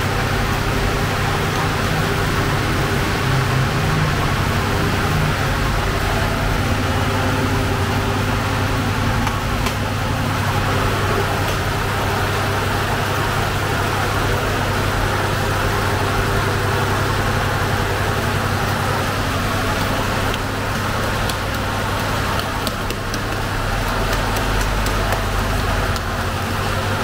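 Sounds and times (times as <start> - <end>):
low machine hum: 0.0 - 27.0
oven rushing noise: 0.0 - 27.0
dough taps and slaps: 9.2 - 9.9, 19.7 - 26.4.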